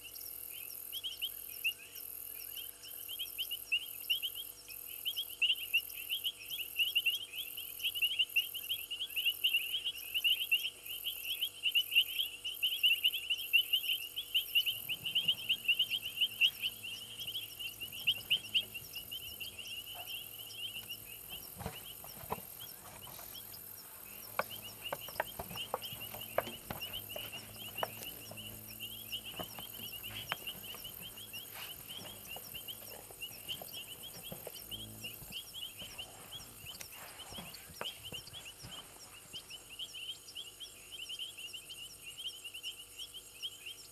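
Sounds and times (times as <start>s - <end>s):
high insect buzz: 0.0s - 43.8s
frogs chirping: 0.0s - 43.9s
low hum: 14.0s - 37.5s.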